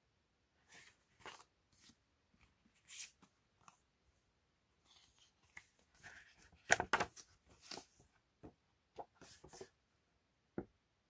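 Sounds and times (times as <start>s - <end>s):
photo cards rustling and clicking: 4.9s - 8.1s.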